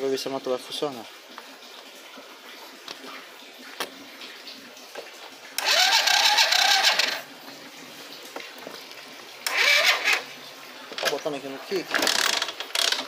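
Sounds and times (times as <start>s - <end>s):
electric starter cranking whine: 5.6s - 7.2s, 9.4s - 10.2s.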